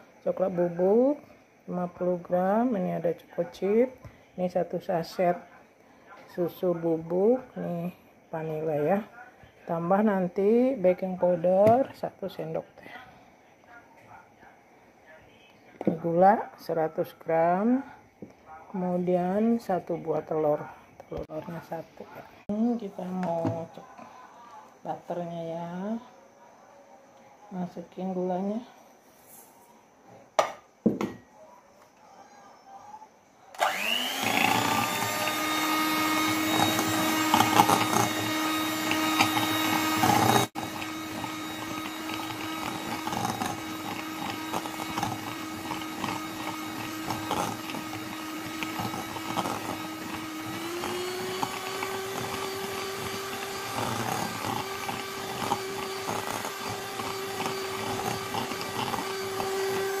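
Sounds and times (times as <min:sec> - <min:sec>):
electric hand mixer whirring: 0:33.6 - 1:00.0.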